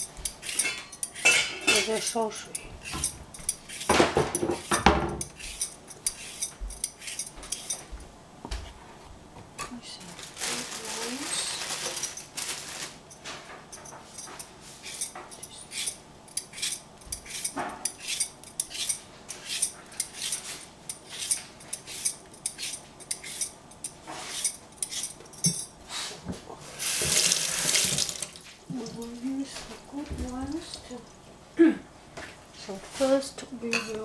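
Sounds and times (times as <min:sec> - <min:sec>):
peeler scraping cucumber: 0:00.0 - 0:07.8, 0:14.8 - 0:25.2
tap water running: 0:26.7 - 0:31.2.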